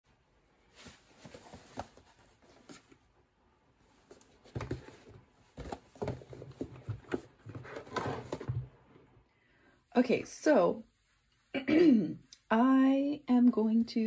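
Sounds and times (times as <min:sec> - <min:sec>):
cardboard boxes knocking and rustling: 0:00.8 - 0:03.0, 0:04.1 - 0:08.8.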